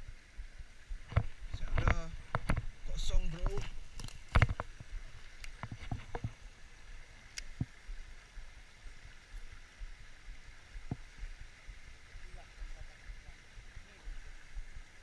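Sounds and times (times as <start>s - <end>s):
stream rushing over stones: 0.0s - 15.0s.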